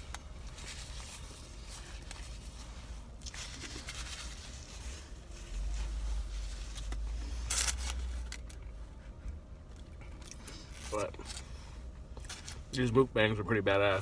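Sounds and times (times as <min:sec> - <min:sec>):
steady low rumble: 0:00.0 - 0:14.0
paper wrapper crinkling: 0:03.2 - 0:08.6.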